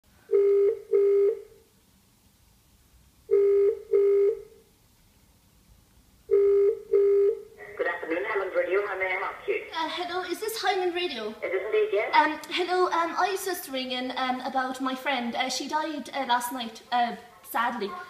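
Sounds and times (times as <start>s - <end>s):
telephone ringback tone: 0.3s - 1.4s, 3.3s - 4.5s, 6.3s - 7.4s.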